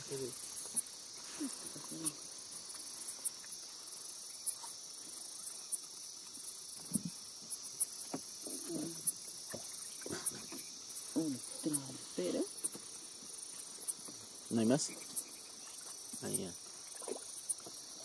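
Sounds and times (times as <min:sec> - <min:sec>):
night insect chorus: 0:00.0 - 0:18.0.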